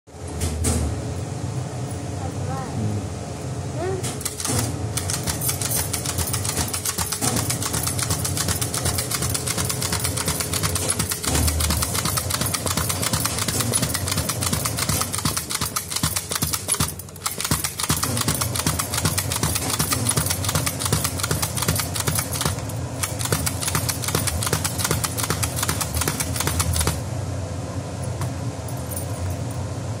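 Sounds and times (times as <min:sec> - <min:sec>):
sticker printing machine clattering: 0:04.2 - 0:27.0.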